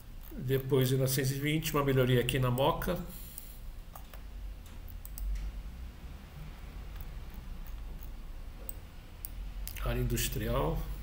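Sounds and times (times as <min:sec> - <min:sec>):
low steady hum: 0:00.0 - 0:11.0
computer mouse clicking: 0:03.3 - 0:05.5, 0:06.6 - 0:09.8.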